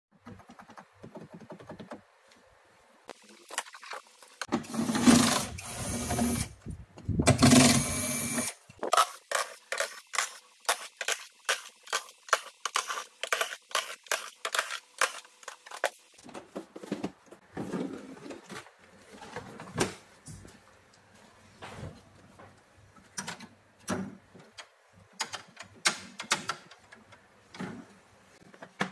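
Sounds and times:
power screwdriver running: 5.3 - 6.5, 7.4 - 8.6.

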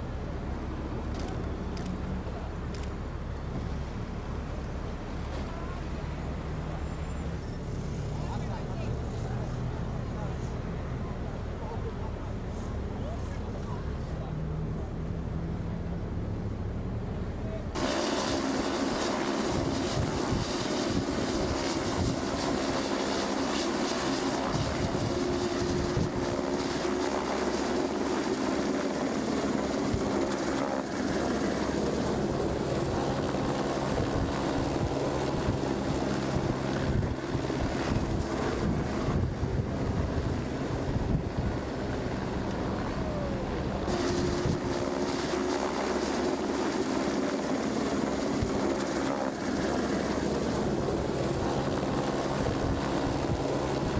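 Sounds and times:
helicopter rotor and turbine: 17.8 - 53.9
high turbine whine: 17.8 - 53.9.

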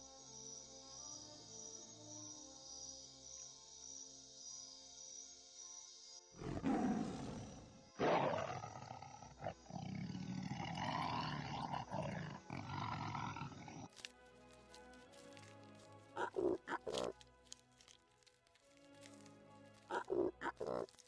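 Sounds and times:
soft background music: 0.0 - 21.0
lion growling: 6.4 - 13.9, 16.2 - 17.1, 19.9 - 20.9
lion roaring: 6.4 - 13.9, 16.2 - 17.1, 19.9 - 20.9.

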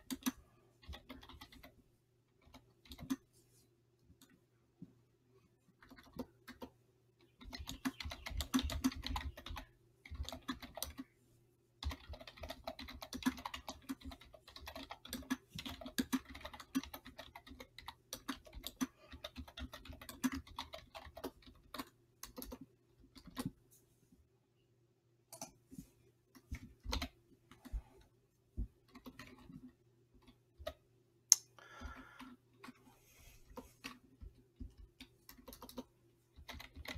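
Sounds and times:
computer keyboard typing: 0.0 - 3.3, 5.8 - 11.1, 11.8 - 23.6, 26.4 - 27.7, 28.8 - 30.8, 33.6 - 36.9
faint steady hum: 0.0 - 36.9.

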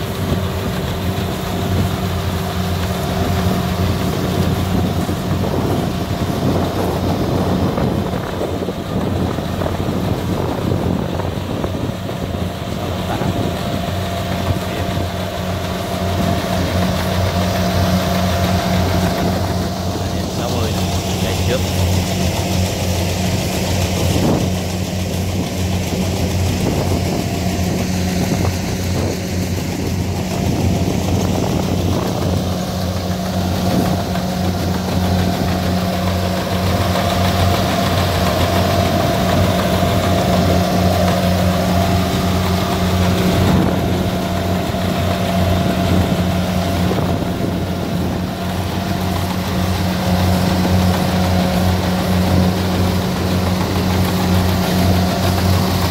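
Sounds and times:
combine harvester engine running: 0.0 - 55.9.

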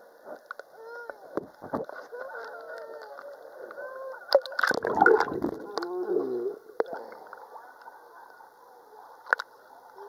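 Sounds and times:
muffled underwater gurgling: 4.3 - 7.2.

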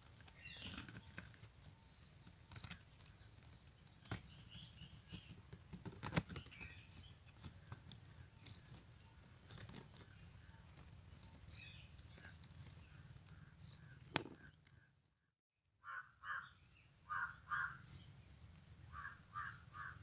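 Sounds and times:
cricket chirps: 0.1 - 3.7, 6.6 - 13.9, 16.2 - 20.0.

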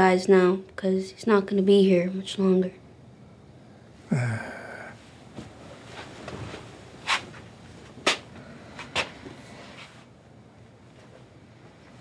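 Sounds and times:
old man grunting exhale: 4.1 - 5.0.

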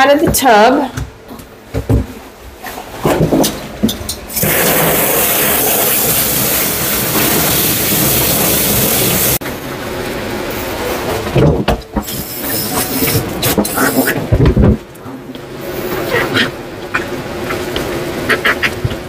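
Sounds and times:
hose nozzle spraying water: 4.4 - 9.4, 12.0 - 14.2.

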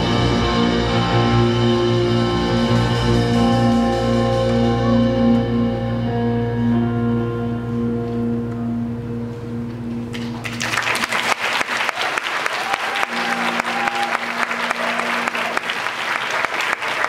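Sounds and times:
audience applause: 10.1 - 17.0.

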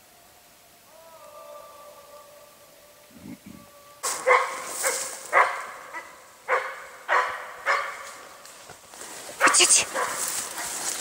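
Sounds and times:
dog barking: 4.1 - 8.3, 9.4 - 10.8.

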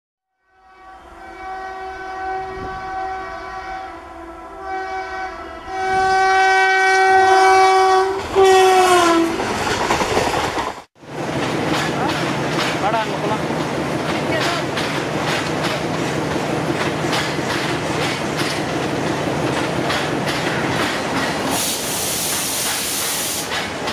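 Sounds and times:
locomotive air horn blasts: 0.4 - 9.4.

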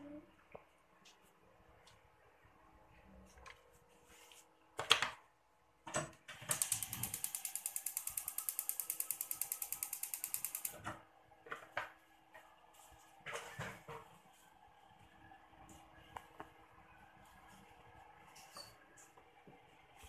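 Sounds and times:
gas hob igniter clicking: 6.5 - 10.8.

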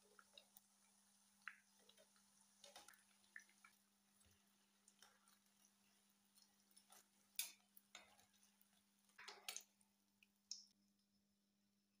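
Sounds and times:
metal tongs clacking on a pan: 6.8 - 8.4, 9.1 - 9.7.

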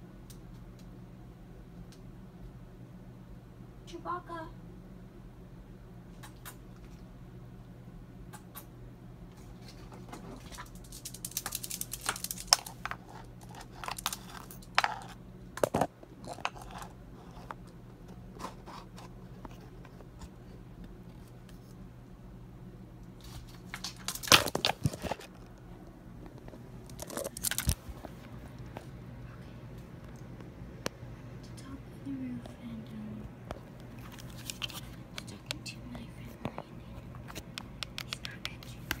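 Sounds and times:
low hum: 0.0 - 39.0
rustling and sharp clicks: 9.5 - 15.0.

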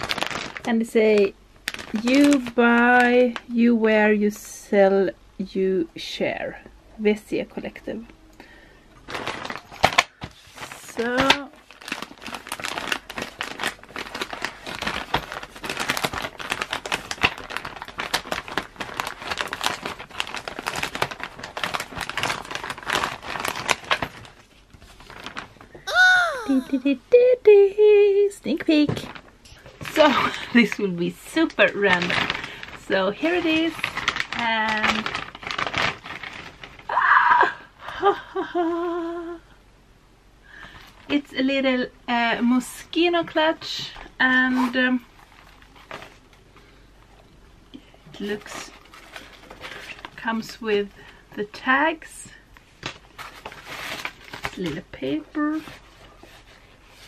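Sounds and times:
plastic bag crinkling: 0.0 - 3.6, 8.6 - 27.0, 28.7 - 37.0, 43.6 - 57.0
woman squealing with excitement: 25.9 - 26.8, 36.9 - 37.6.

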